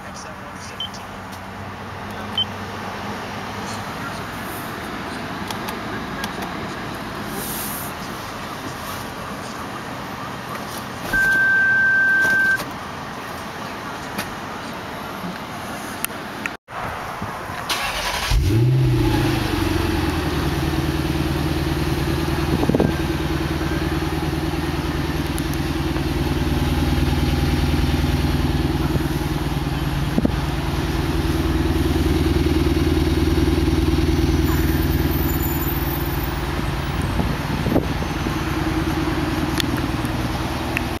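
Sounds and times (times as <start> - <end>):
car engine starting and idling: 17.5 - 41.0.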